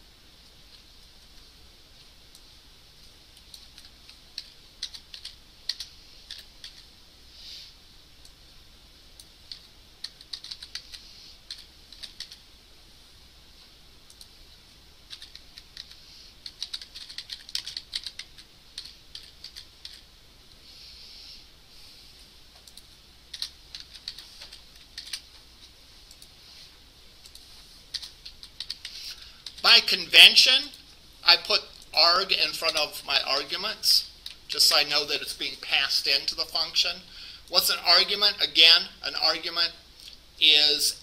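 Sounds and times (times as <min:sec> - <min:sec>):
keyboard typing: 0:02.3 - 0:06.9, 0:09.2 - 0:12.4, 0:15.0 - 0:20.1, 0:22.5 - 0:26.3, 0:27.2 - 0:29.6.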